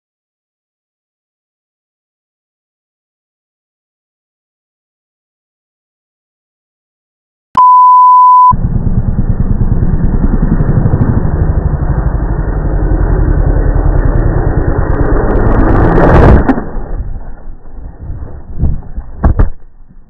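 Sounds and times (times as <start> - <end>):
test-tone beep: 7.6 - 8.6
dirt bike engine running: 8.5 - 19.2
dirt bike crash: 15.3 - 20.0.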